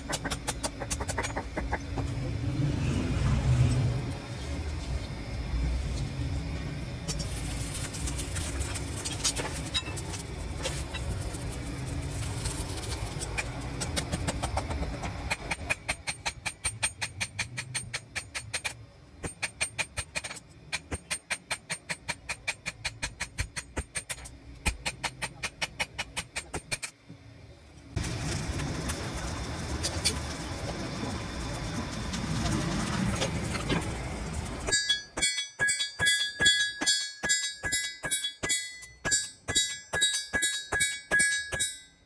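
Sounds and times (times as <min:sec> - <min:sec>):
forge fire rumble: 0:28.0 - 0:34.7
hammer blows on anvil: 0:34.7 - 0:42.0.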